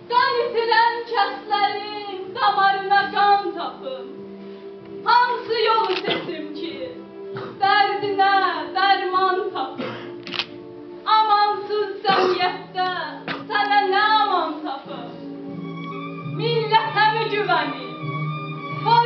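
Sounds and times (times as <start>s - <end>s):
background music: 0.0s - 19.0s
girl singing into a microphone: 0.1s - 4.0s, 7.5s - 9.8s, 11.1s - 15.1s.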